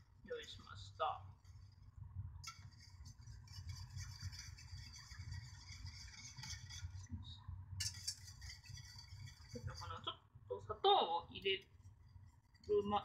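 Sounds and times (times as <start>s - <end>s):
whisk scraping a saucepan: 1.4s - 10.2s, 11.6s - 13.0s.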